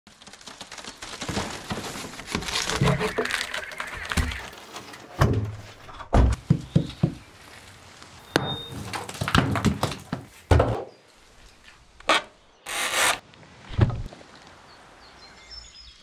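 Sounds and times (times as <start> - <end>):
crackling and rustling: 0.1 - 10.5
heavy wooden planks thunking: 5.2 - 7.2, 8.4 - 10.9.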